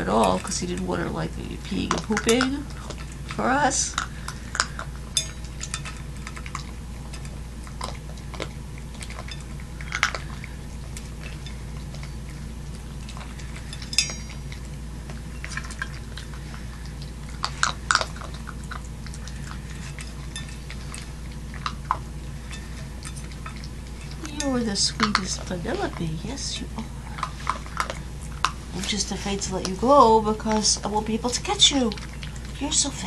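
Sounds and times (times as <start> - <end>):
teeth clinking on metal bowl: 0.0 - 1.1, 1.7 - 16.5, 17.3 - 26.1
puppy chewing food: 0.0 - 33.0.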